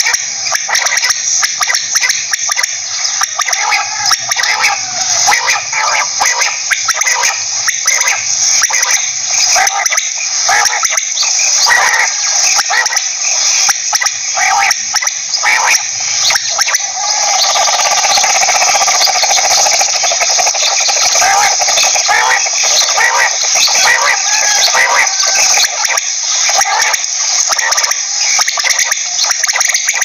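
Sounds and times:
rapid bird trill: 0:00.0 - 0:30.0
quail calling: 0:03.1 - 0:09.0, 0:11.6 - 0:13.0, 0:14.4 - 0:30.0.

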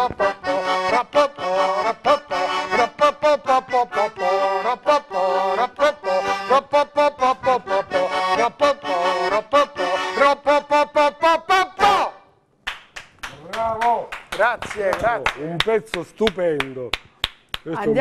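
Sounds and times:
button accordion playing folk tune: 0:00.0 - 0:12.0.

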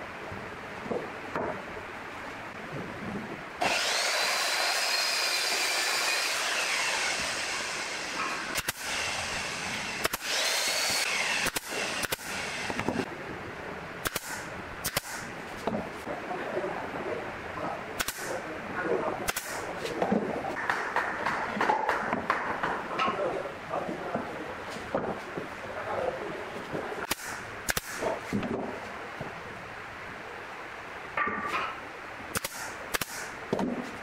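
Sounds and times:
whirring hiss: 0:03.6 - 0:13.1
nail gun firing: 0:08.2 - 0:09.2, 0:09.8 - 0:13.1, 0:14.0 - 0:15.3, 0:18.0 - 0:18.4, 0:19.3 - 0:19.7, 0:27.0 - 0:28.2, 0:32.3 - 0:33.3.

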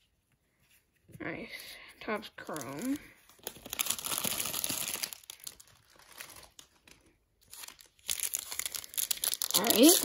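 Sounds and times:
foil wrappers crinkling: 0:02.4 - 0:10.0.

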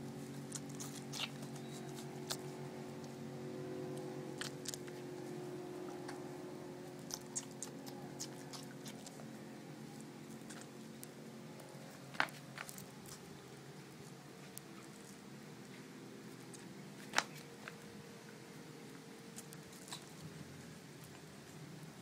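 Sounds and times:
steady low hum: 0:00.0 - 0:22.0
puppies suckling wet clicks: 0:00.4 - 0:03.2, 0:04.4 - 0:05.0, 0:07.0 - 0:09.3.

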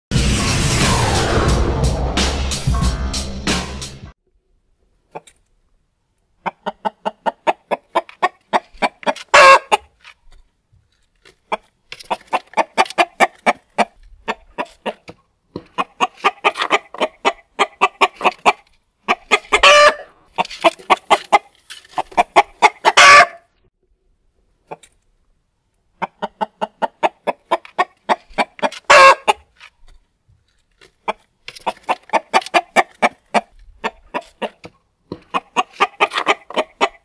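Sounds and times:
rooster clucking: 0:06.4 - 0:10.0, 0:11.5 - 0:23.5, 0:26.0 - 0:29.5, 0:31.0 - 0:37.0
rooster squawk: 0:08.5 - 0:09.9, 0:15.8 - 0:20.5, 0:22.1 - 0:23.5, 0:28.1 - 0:29.4.

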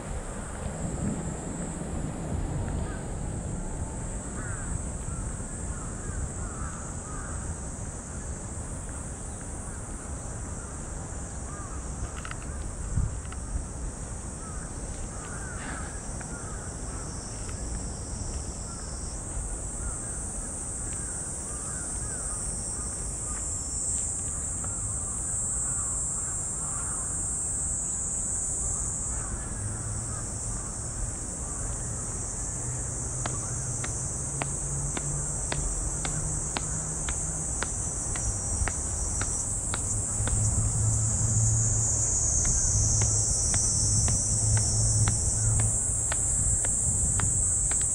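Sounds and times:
cicada chorus drone: 0:00.0 - 0:47.9
crows cawing: 0:04.4 - 0:07.4, 0:11.5 - 0:11.8, 0:14.4 - 0:17.0, 0:21.0 - 0:22.4, 0:25.7 - 0:27.1.

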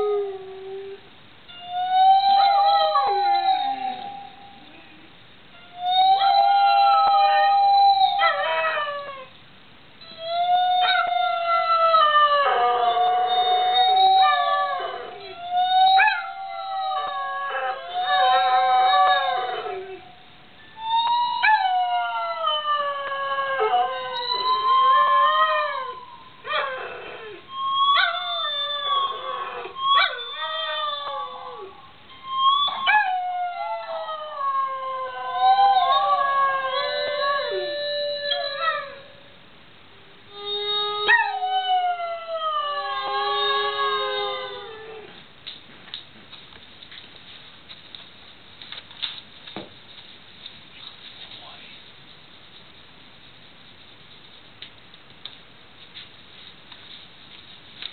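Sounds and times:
dog howling: 0:00.0 - 0:01.0, 0:01.6 - 0:04.6, 0:05.7 - 0:09.3, 0:10.1 - 0:20.2, 0:20.8 - 0:39.3, 0:40.3 - 0:45.2.

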